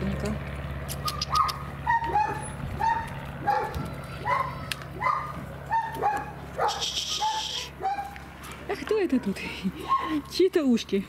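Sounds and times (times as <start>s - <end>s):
puppies whining: 1.0s - 8.2s, 9.1s - 10.2s.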